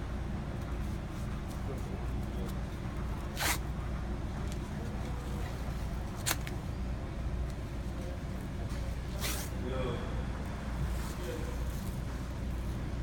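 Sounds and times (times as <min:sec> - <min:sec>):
steady low hum: 0:00.0 - 0:13.0
tape ripping from roll: 0:03.3 - 0:03.6, 0:06.2 - 0:06.6.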